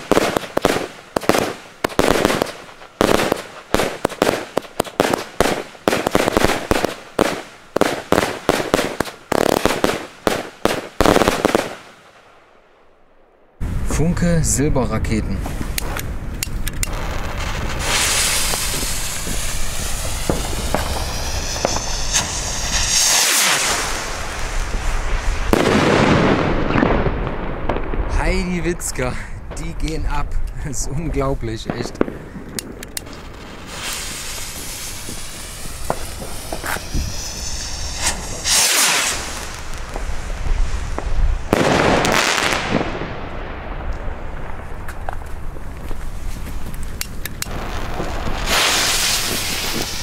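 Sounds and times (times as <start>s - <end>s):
skyrockets launching with hiss: 0.0s - 12.1s, 15.4s - 27.1s, 32.0s - 43.1s, 46.0s - 50.0s
firework rockets whooshing: 0.0s - 12.2s, 15.4s - 30.2s, 31.1s - 50.0s
sharp firework cracks: 0.0s - 13.2s, 15.5s - 30.5s, 31.6s - 50.0s
sharp pops: 17.8s - 24.8s, 31.6s - 40.2s.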